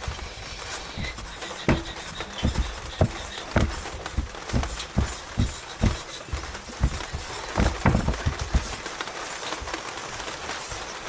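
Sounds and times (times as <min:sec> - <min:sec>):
rag wiping metal cover: 0:00.0 - 0:09.6
steady hiss: 0:00.0 - 0:11.0
dull knocks on workbench: 0:01.0 - 0:08.8.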